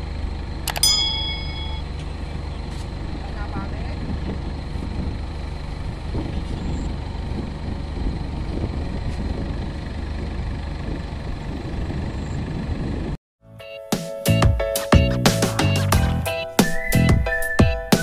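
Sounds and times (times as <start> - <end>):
combine harvester engine rumbling: 0.0 - 13.2.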